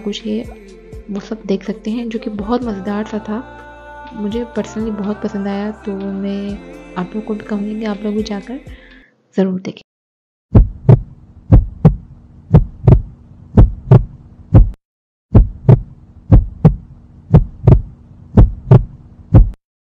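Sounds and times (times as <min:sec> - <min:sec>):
heartbeat thumps: 0:10.5 - 0:19.6.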